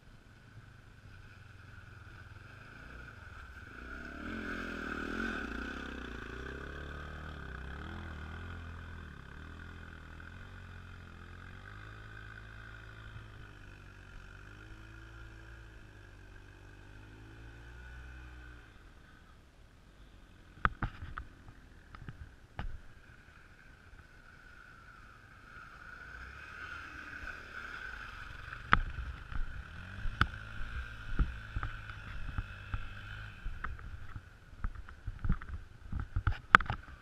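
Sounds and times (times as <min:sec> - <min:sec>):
dirt bike engines: 0:00.0 - 0:37.0.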